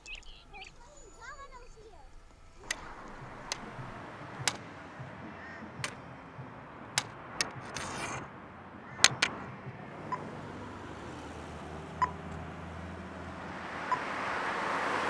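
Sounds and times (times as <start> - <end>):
street background hiss: 0.0 - 15.0
cane tapping on concrete: 2.6 - 10.4.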